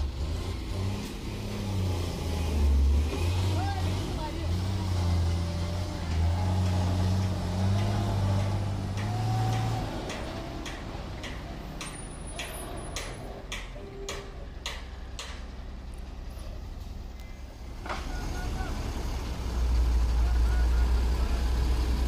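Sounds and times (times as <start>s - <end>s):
truck diesel engine under load: 0.0s - 22.0s
regular ticking clicks: 7.7s - 16.1s.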